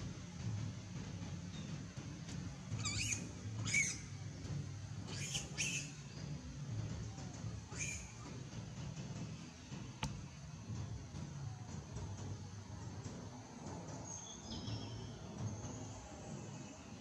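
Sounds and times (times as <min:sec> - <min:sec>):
steady low rumble: 0:00.0 - 0:17.0
monkeys squealing: 0:02.8 - 0:04.1, 0:05.1 - 0:06.0, 0:07.7 - 0:08.2.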